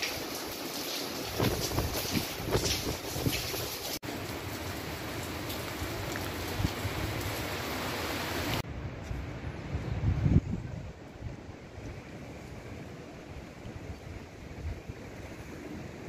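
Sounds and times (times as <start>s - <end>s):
heavy rain hissing: 0.0s - 8.6s
wind buffeting microphone: 1.2s - 4.0s, 8.6s - 16.0s.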